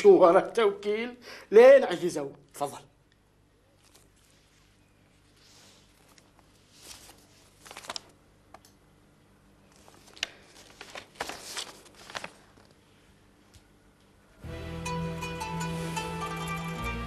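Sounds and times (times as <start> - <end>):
faint steady hum: 0.0 - 17.0
paper rustling: 3.8 - 8.2, 9.7 - 12.8.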